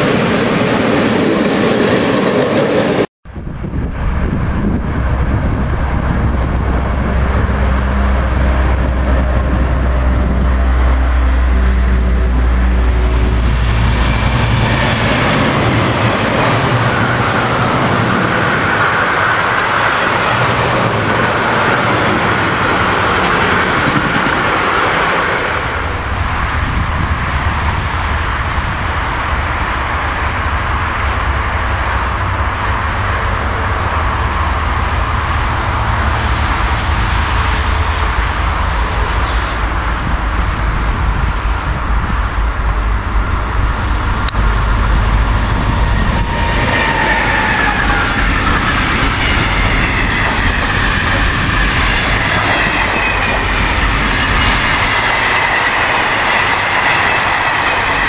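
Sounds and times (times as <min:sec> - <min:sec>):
electric locomotive humming: 0:00.0 - 0:58.0
low rumble of freight train: 0:00.0 - 0:58.0
train wheels rolling on rails: 0:00.0 - 0:58.0.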